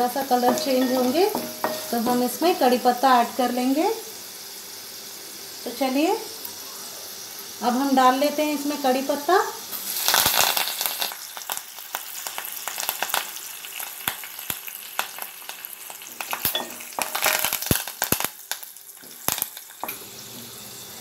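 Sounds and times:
spices sizzling in hot oil: 0.0 - 21.0
spatula scraping metal pan: 0.3 - 2.3
sharp crackles and clicks: 16.2 - 19.8.

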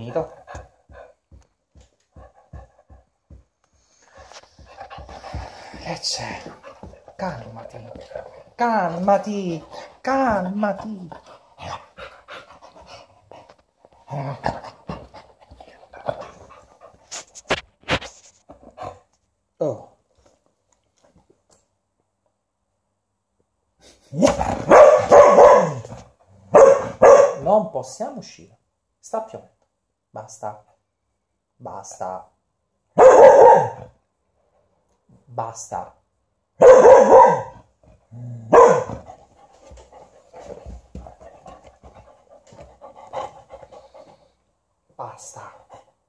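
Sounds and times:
dog panting: 0.2 - 17.3, 38.9 - 44.5
dog barking: 24.6 - 25.9, 26.5 - 27.5, 33.0 - 33.9, 36.6 - 37.6, 38.5 - 39.0.

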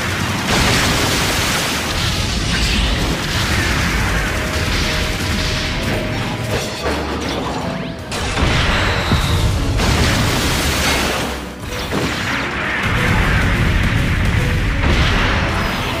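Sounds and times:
music: 0.0 - 16.0
booming impacts: 11.4 - 16.0.

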